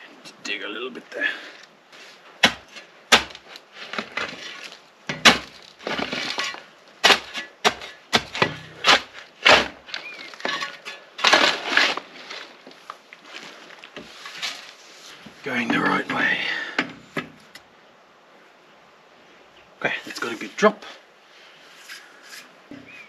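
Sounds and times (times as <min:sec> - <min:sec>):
shovel digging into stony soil: 0:02.4 - 0:12.6.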